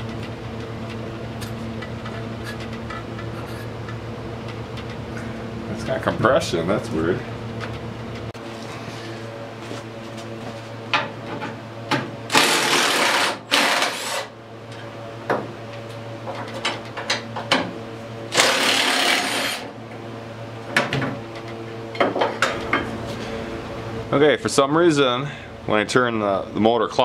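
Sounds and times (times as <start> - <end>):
impact wrench bursts: 12.3 - 14.3, 18.3 - 19.7.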